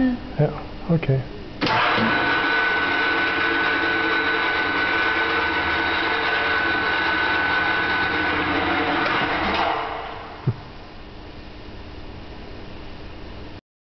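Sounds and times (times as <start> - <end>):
low machine hums: 0.0 - 13.6
machine whine: 1.6 - 11.1.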